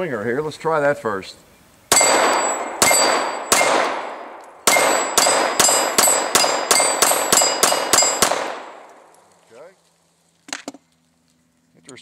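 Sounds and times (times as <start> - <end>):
steel plate ringing: 1.9 - 8.4
pistol shots: 1.9 - 9.2.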